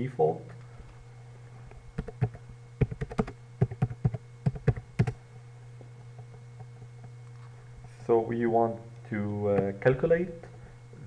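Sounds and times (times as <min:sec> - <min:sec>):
low steady hum: 0:00.0 - 0:11.0
typing on keyboard: 0:02.0 - 0:05.2.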